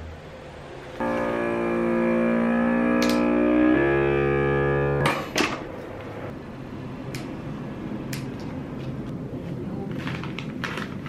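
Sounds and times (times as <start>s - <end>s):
vacuum sealer pump humming: 1.0s - 6.3s
sharp clicks: 3.0s - 3.2s.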